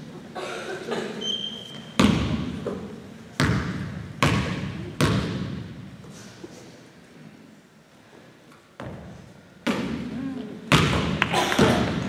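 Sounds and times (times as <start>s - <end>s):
basketball bouncing on gym floor: 1.9s - 5.9s, 8.8s - 12.0s.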